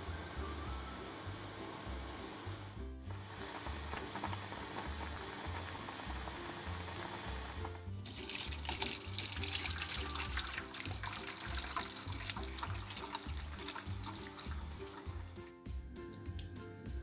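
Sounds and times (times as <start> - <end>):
pot boiling with soft hiss: 0.0 - 17.0
water draining into colander: 7.6 - 15.5.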